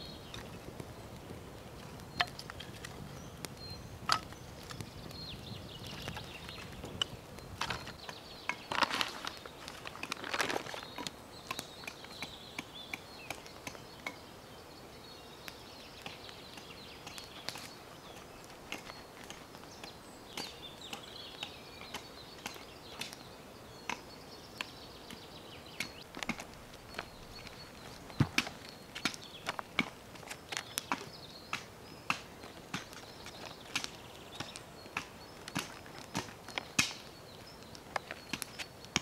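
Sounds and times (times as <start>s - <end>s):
bird singing: 0.0s - 39.0s
paper crinkling: 8.7s - 11.0s.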